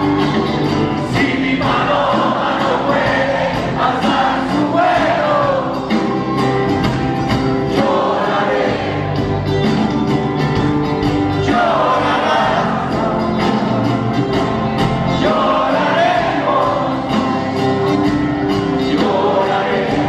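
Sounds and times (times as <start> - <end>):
drum strokes: 0.0 - 20.0
folk-rock band playing: 0.0 - 20.0.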